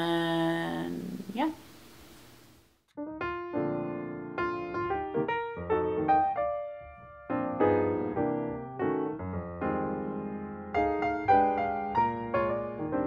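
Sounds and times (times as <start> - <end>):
piano music: 3.0 - 13.0.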